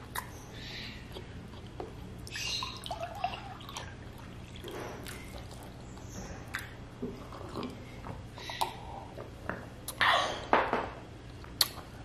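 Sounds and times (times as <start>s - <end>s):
water poured into a glass: 2.6s - 3.8s.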